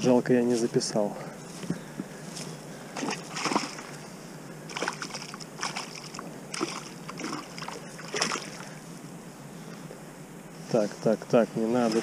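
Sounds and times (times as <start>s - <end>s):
fish splashing in water: 3.0s - 3.9s, 4.7s - 8.8s.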